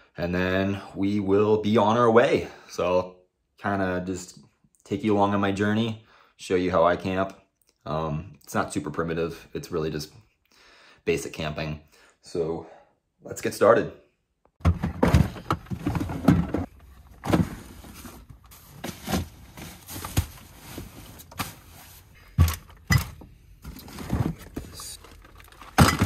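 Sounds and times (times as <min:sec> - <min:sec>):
bags and boxes thudding: 0:14.6 - 0:26.0
rustling: 0:15.0 - 0:22.9.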